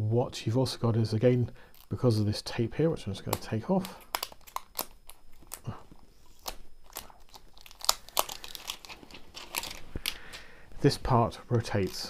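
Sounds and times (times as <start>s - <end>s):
plastic tape being peeled: 3.3s - 5.7s, 6.3s - 10.2s.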